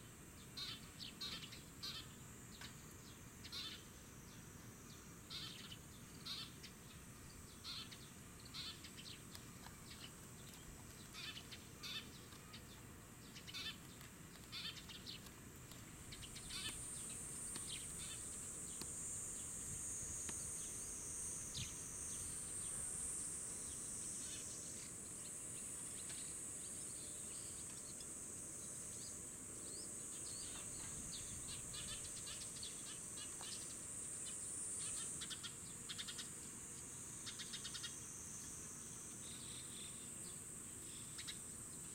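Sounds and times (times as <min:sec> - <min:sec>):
high-pitched insect buzz: 0:00.6 - 0:09.2, 0:16.1 - 0:41.9
bird chirps: 0:05.3 - 0:15.3, 0:16.1 - 0:19.5.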